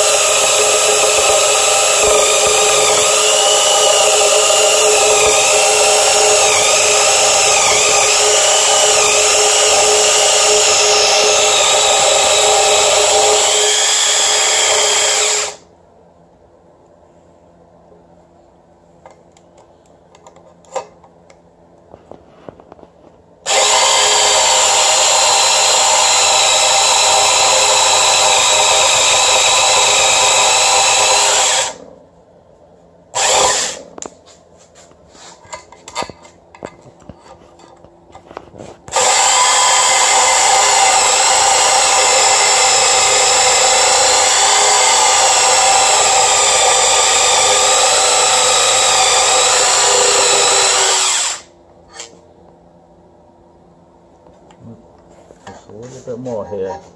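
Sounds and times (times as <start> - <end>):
power saw cutting metal: 0.0 - 15.6, 23.5 - 31.8, 33.2 - 33.8, 38.9 - 52.1.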